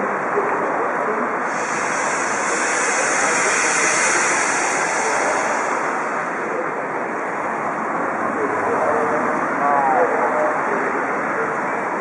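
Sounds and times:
steam locomotive hissing: 1.4s - 7.7s.

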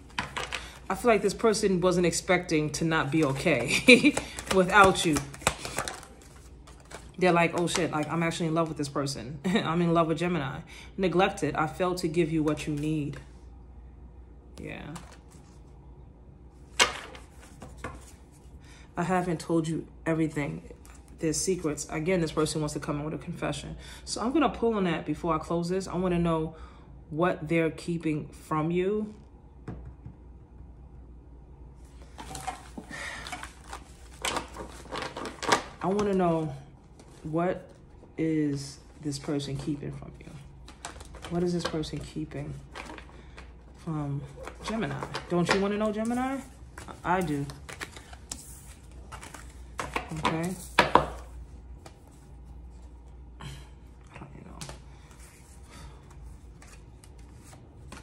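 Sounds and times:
room hum: 0.0s - 58.0s
cards rustling on a tabletop: 3.1s - 8.1s, 14.9s - 15.7s, 16.7s - 18.5s, 31.9s - 37.8s, 38.8s - 53.1s, 54.6s - 58.0s.

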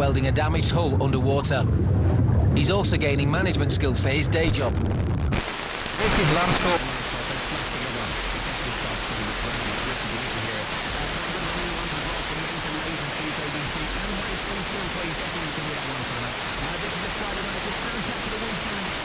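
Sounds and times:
radio static hiss: 4.5s - 19.0s.

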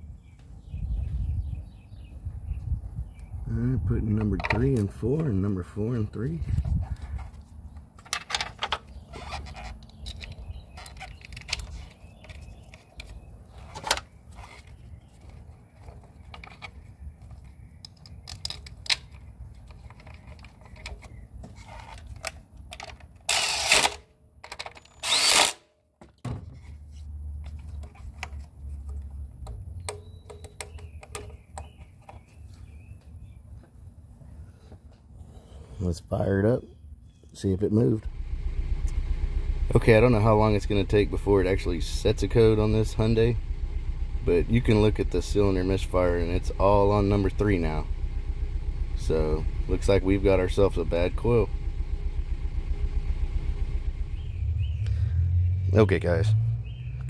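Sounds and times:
plastic clicks and rattles: 15.3s - 21.2s, 21.9s - 23.3s, 24.4s - 25.0s.

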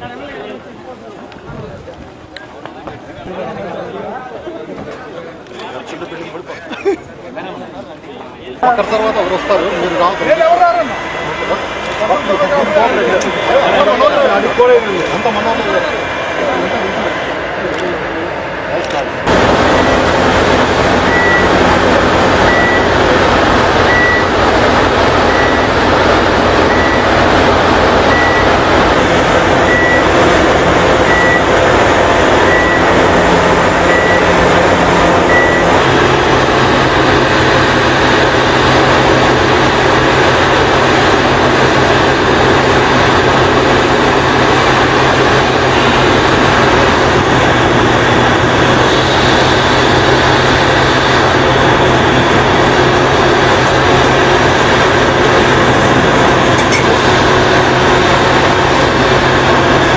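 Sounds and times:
excavator diesel engine running: 0.0s - 59.9s
warning alarm beeps: 20.9s - 21.8s, 22.4s - 23.2s, 23.8s - 24.4s, 25.2s - 26.0s, 26.6s - 27.3s, 28.0s - 28.7s, 29.5s - 30.4s, 31.0s - 31.6s, 32.3s - 35.8s.

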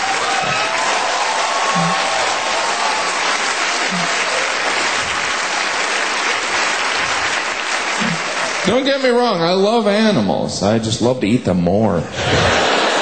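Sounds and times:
audience applauding: 0.0s - 9.6s, 12.2s - 13.0s.

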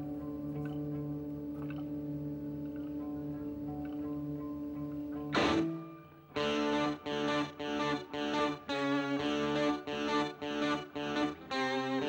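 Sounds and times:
electric guitar chords: 0.0s - 12.0s.

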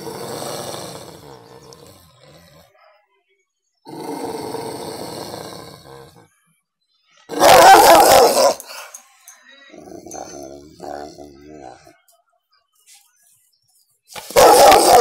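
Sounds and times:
dog growling: 0.0s - 2.8s, 3.9s - 6.2s, 9.7s - 11.9s.

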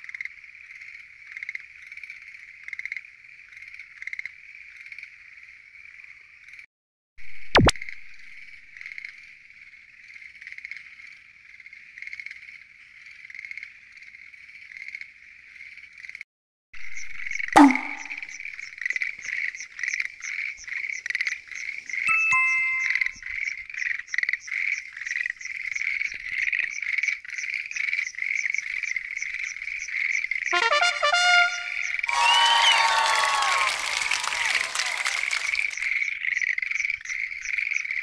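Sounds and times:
short sharp sound: 17.6s - 18.3s
chorus of frogs calling: 34.7s - 38.0s.

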